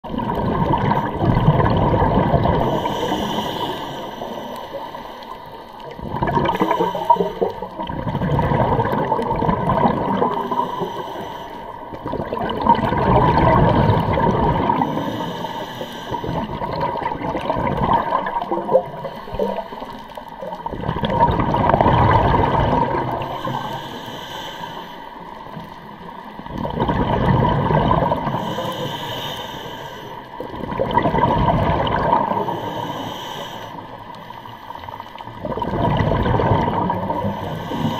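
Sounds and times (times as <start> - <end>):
exhaled bubbles rushing: 0.0 - 4.6, 5.8 - 10.8, 11.9 - 15.2, 16.2 - 23.7, 25.9 - 28.6, 30.3 - 32.6, 35.2 - 37.9
regulator breathing hiss: 2.6 - 5.6, 6.6 - 7.4, 10.4 - 11.9, 14.8 - 16.4, 23.2 - 25.5, 28.3 - 30.3, 32.4 - 35.2, 37.3 - 37.9.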